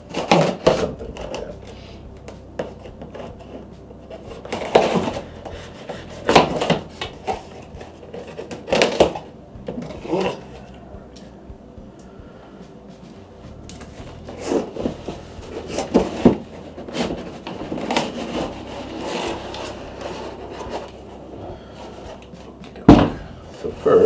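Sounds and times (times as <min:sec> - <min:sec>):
cardboard box lid scraping: 0:02.6 - 0:10.5, 0:13.8 - 0:22.6.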